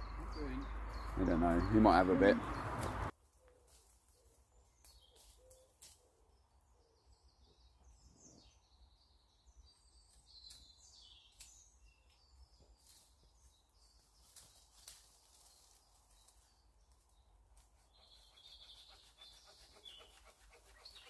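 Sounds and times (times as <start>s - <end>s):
small birds chirping: 0.0s - 21.0s.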